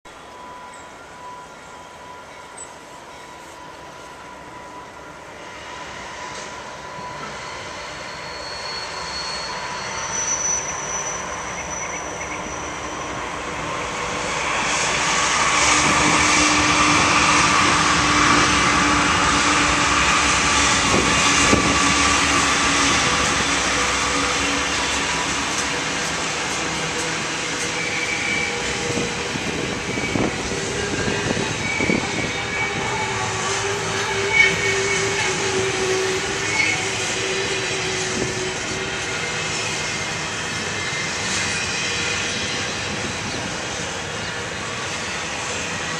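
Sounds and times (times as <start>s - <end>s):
diesel locomotives passing: 0.1s - 45.9s
rumble of rolling freight cars: 0.1s - 45.9s
thin squeals: 7.0s - 13.3s.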